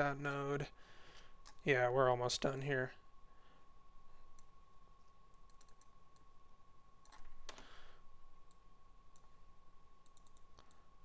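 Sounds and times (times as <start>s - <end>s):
faint steady whine: 0.0s - 11.0s
computer mouse clicks: 5.4s - 6.3s, 7.0s - 7.7s, 8.4s - 9.4s, 10.0s - 10.9s.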